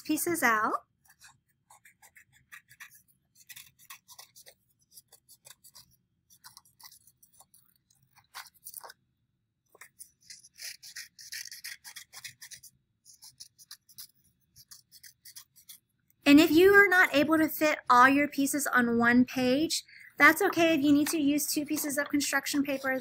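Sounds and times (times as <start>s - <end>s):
scissors snipping paper: 0.2s - 9.0s, 9.7s - 15.9s, 20.2s - 23.0s.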